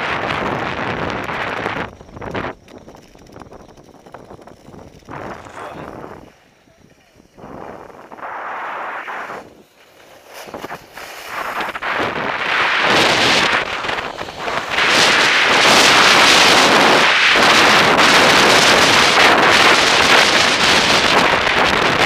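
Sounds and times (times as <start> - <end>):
wind rushing over microphone: 0.0 - 9.7, 10.4 - 22.0.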